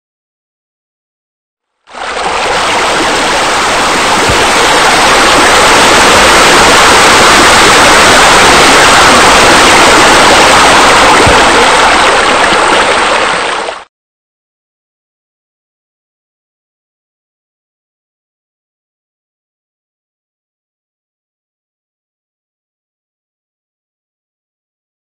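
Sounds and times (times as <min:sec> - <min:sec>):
water splashing into pool: 0:01.9 - 0:13.9.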